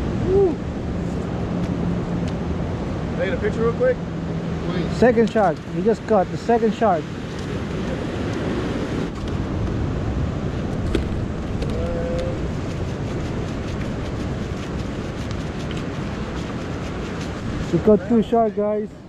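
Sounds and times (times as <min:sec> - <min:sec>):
wind buffeting microphone: 0:07.0 - 0:19.0.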